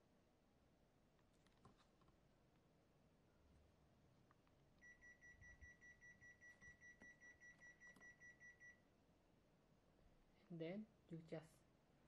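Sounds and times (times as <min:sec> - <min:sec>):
air conditioner short high beeps: 0:04.8 - 0:08.9.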